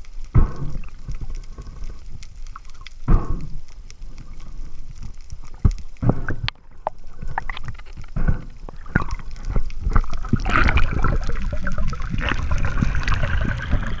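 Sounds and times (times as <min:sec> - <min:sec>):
water rushing and gurgling: 0:00.0 - 0:14.0.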